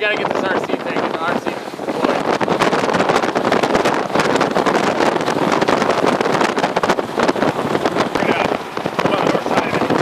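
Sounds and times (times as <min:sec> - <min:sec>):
gusty wind buffeting microphone: 0:00.0 - 0:10.0
rapid crackles: 0:00.0 - 0:10.0.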